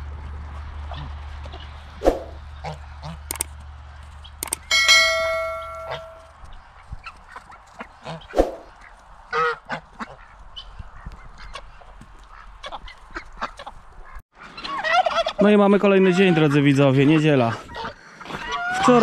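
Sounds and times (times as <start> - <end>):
ducks quacking: 2.3 - 3.3, 7.3 - 19.0
geese honking: 2.5 - 3.3, 9.3 - 10.7, 11.4 - 19.0.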